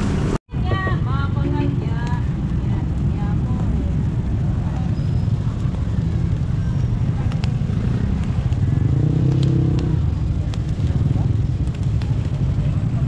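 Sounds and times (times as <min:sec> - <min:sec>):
low rumble of street traffic: 0:00.0 - 0:13.0
vehicle engine: 0:00.0 - 0:13.0.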